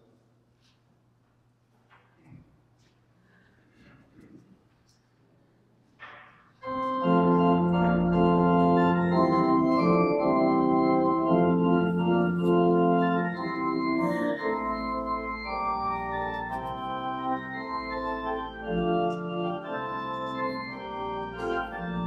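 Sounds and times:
organ sustained chords: 6.6s - 22.0s.

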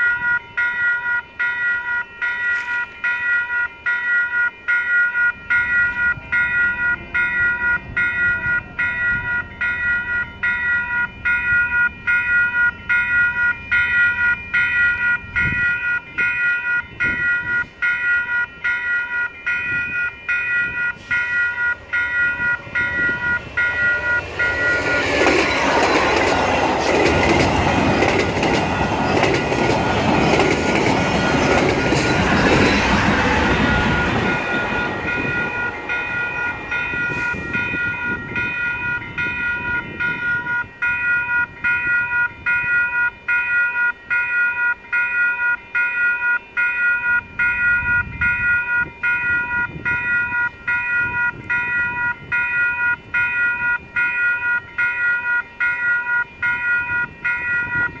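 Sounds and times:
crossing warning bell ringing: 0.0s - 58.0s
train cars clattering past: 0.0s - 58.0s.

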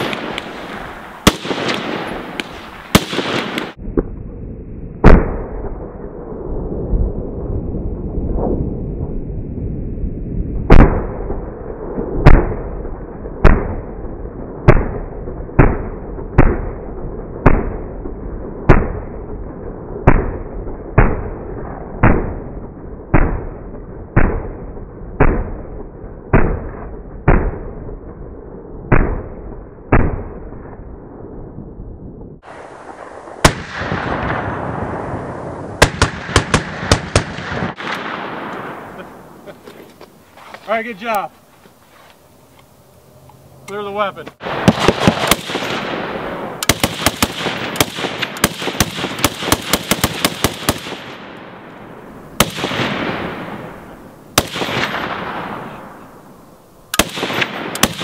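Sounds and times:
machine gun firing: 35.8s - 38.2s, 44.5s - 46.0s, 46.6s - 51.2s, 57.0s - 58.0s.

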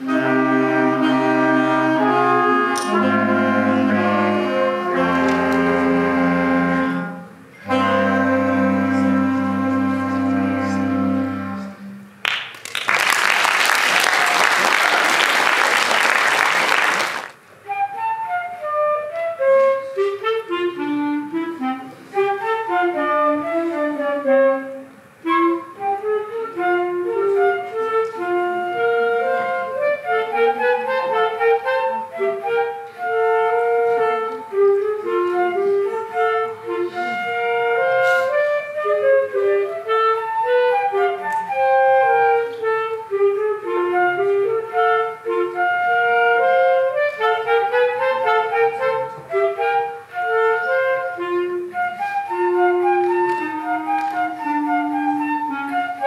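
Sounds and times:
flute and clarinet duet: 0.0s - 12.2s, 14.0s - 56.0s
applause: 12.2s - 17.4s.

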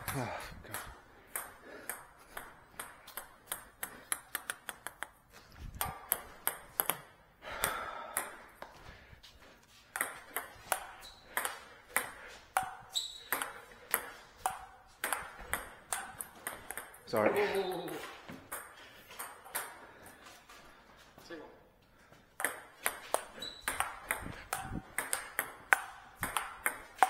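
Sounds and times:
table tennis ball clicking: 0.0s - 7.0s, 22.4s - 27.0s.

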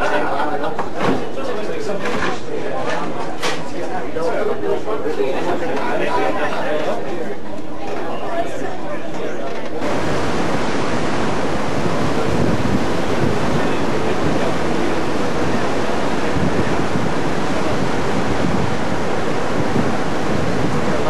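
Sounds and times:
sea water rushing: 9.8s - 21.0s
wind buffeting microphone: 9.8s - 21.0s.

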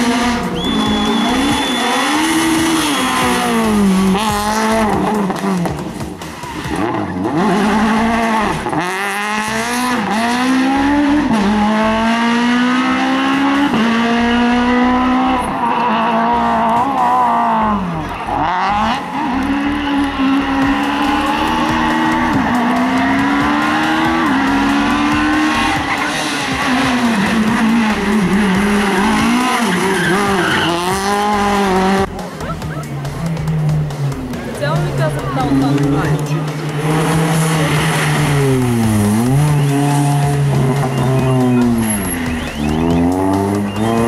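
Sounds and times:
rally car engine revving: 0.0s - 44.0s.

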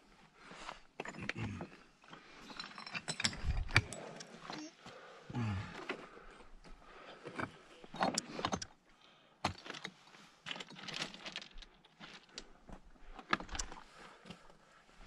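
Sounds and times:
small rocks clattering: 9.4s - 12.6s.

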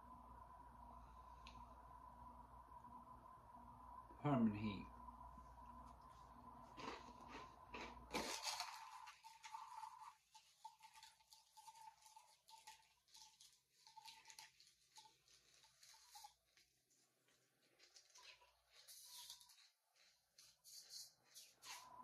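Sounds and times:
snack bag crinkling: 6.6s - 21.9s.

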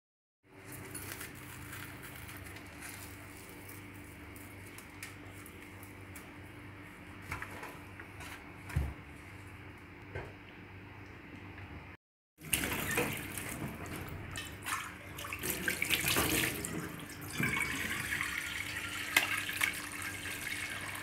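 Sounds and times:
fish skin crackling and squishing: 0.6s - 6.2s.

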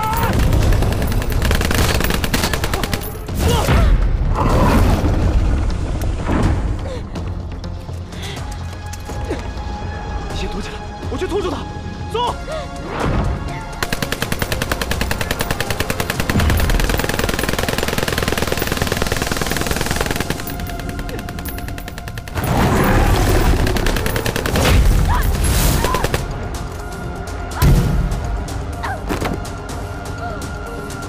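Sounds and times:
rapid sharp cracks: 0.0s - 3.2s, 13.8s - 25.2s.

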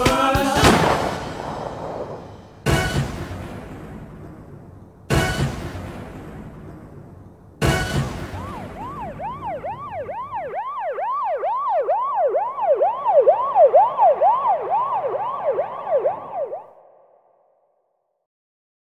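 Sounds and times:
siren yelping: 7.7s - 17.2s.

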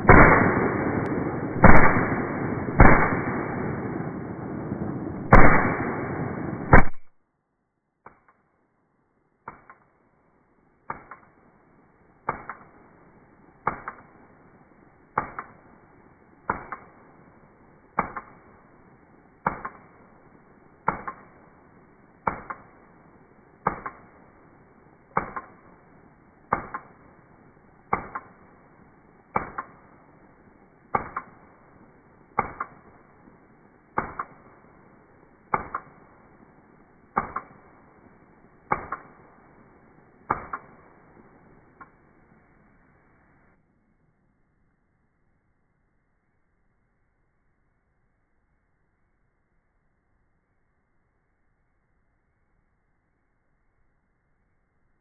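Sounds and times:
slowed rifle shots: 0.0s - 7.2s, 8.0s - 8.6s, 9.4s - 43.4s.

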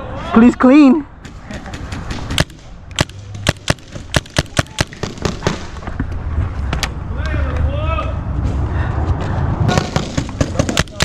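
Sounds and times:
paintball markers firing: 1.3s - 5.8s, 9.7s - 11.0s.

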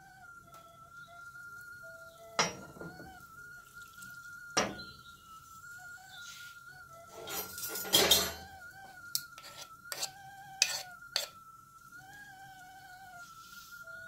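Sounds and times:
kettle whistle: 0.0s - 14.0s
spoon scraping in pot: 7.1s - 11.4s.

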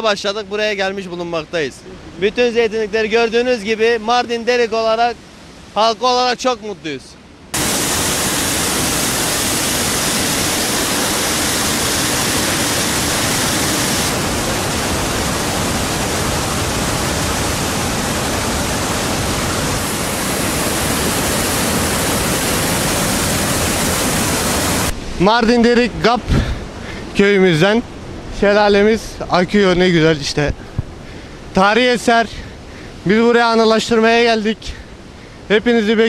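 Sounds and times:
waterfall rushing: 7.5s - 28.2s.

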